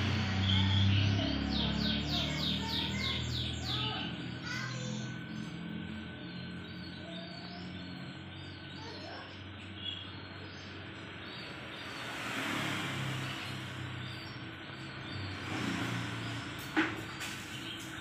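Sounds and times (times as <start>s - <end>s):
vehicle passing: 0.0s - 9.7s, 10.4s - 18.0s
steady low hum: 0.0s - 11.7s.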